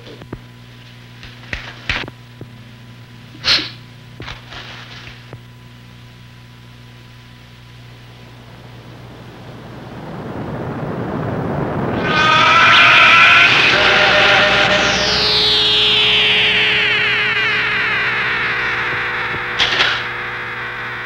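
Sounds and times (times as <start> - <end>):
low hum: 0.0 - 21.0
breathy sneeze build-up: 3.4 - 3.8.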